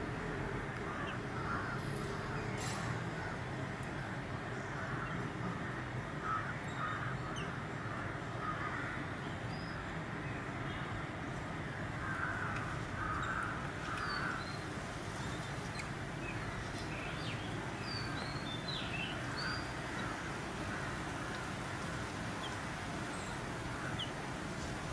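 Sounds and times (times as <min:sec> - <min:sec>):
steady background hiss: 0:00.0 - 0:24.9
harsh bird calls: 0:12.0 - 0:21.6.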